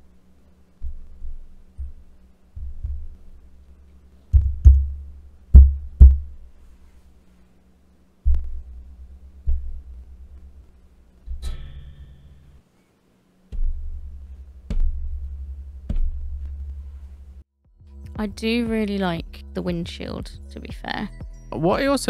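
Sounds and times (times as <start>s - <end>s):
faint steady hum: 0.0s - 21.8s
low thuds on microphone mount: 0.8s - 3.5s, 4.3s - 6.5s, 8.2s - 12.1s, 13.5s - 17.4s
sharp knocks: 0.8s - 3.5s, 4.3s - 6.4s, 8.2s - 12.6s, 13.5s - 17.4s.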